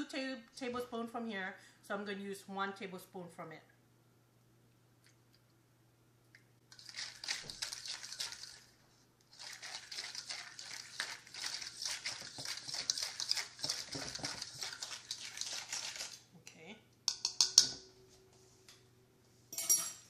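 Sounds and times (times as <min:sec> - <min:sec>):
fork scraping a metal bowl: 0:09.3 - 0:16.2.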